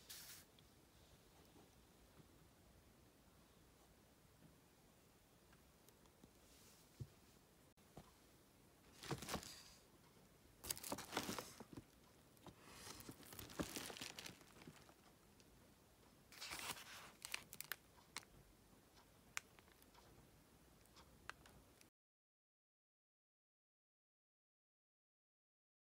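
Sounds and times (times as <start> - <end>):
paper and cellophane rustling: 8.9 - 9.8, 10.6 - 15.0, 16.4 - 17.8.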